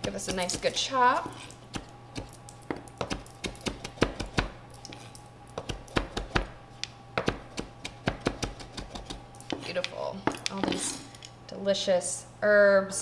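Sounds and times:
knife chopping on wooden board: 0.0s - 6.6s, 7.2s - 10.9s.

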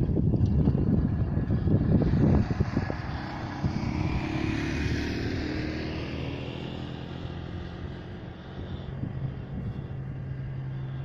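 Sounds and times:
propeller aircraft engine droning: 0.0s - 11.0s.

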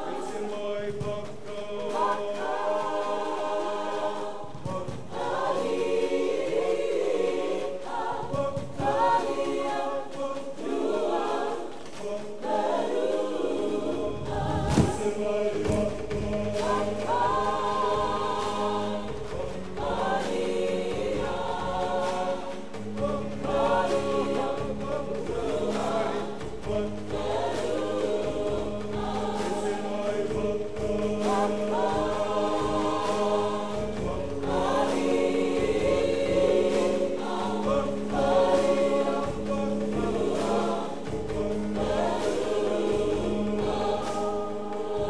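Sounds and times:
group singing: 0.0s - 45.0s
sharp thump: 14.5s - 15.0s.

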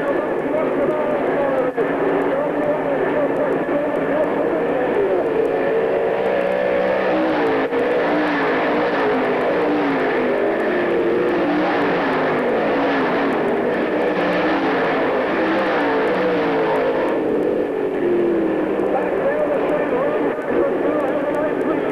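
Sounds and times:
race car engines: 0.0s - 21.9s.

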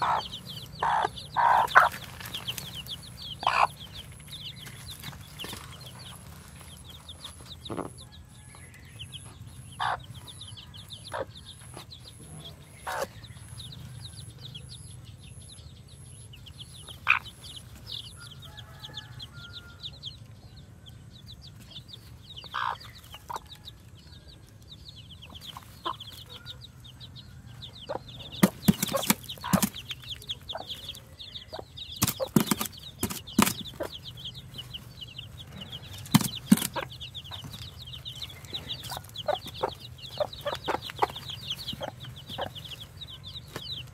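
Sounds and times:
chicks peeping: 0.0s - 43.9s.

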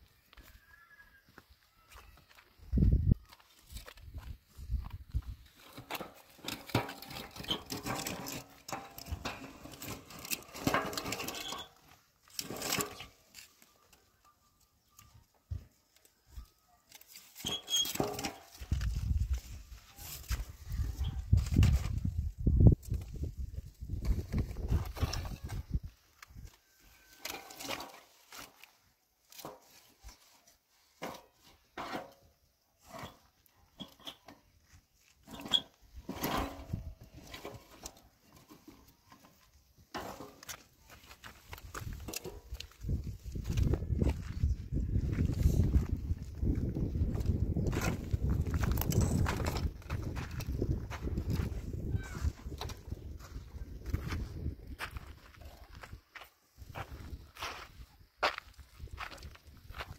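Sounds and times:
dry branches scraping on rubble: 5.4s - 14.0s, 16.9s - 34.3s, 35.0s - 44.5s, 45.1s - 52.8s.

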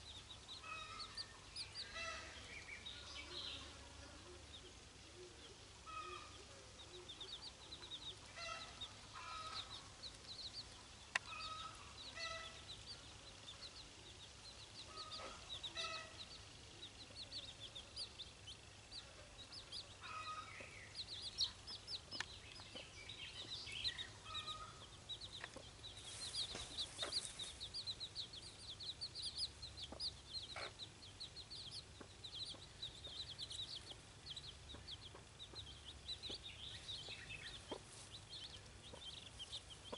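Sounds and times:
chicks peeping: 0.0s - 39.9s
hen clucking: 11.1s - 12.8s, 14.8s - 18.1s, 18.9s - 39.9s.

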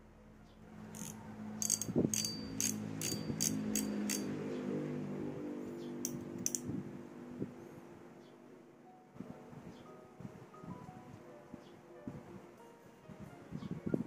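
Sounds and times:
fishing reel ratchet clicks: 1.0s - 4.3s
background music: 8.7s - 14.0s.

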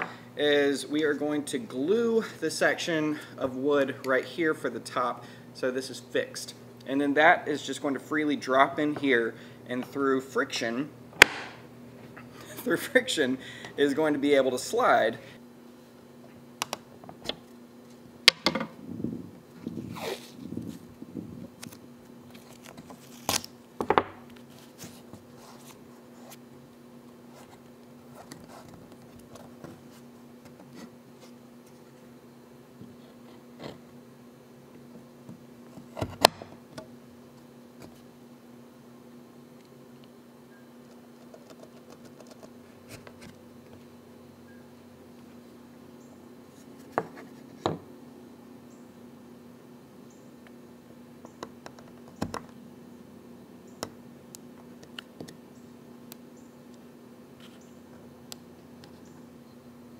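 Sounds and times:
steady low hum: 0.0s - 59.9s
tape being peeled off: 19.7s - 20.8s, 21.6s - 23.6s.

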